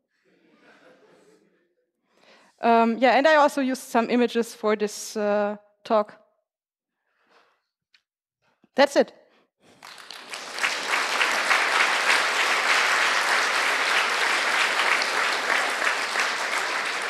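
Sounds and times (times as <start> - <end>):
audience applauding: 9.7 - 17.0.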